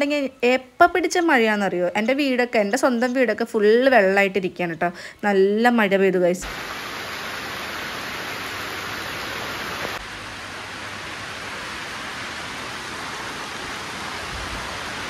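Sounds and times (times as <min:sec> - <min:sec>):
heavy rain falling: 0:06.4 - 0:15.0.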